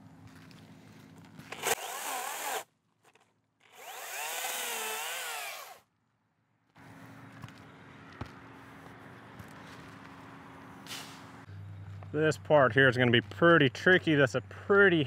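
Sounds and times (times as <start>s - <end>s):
chainsaw cutting wood: 1.5s - 2.7s, 3.7s - 5.8s.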